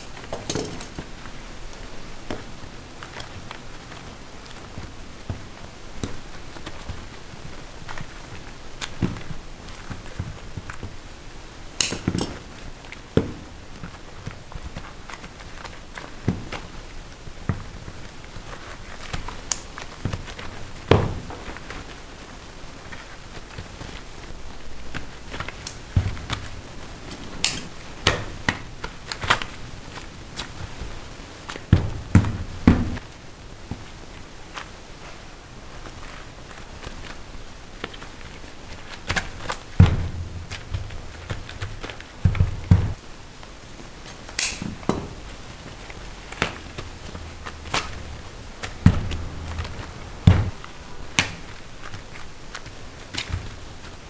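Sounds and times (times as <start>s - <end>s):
tools and candy knocking: 0.0s - 1.0s
heavy thumps: 24.9s - 29.0s, 31.7s - 33.0s, 39.6s - 43.0s, 46.2s - 52.1s.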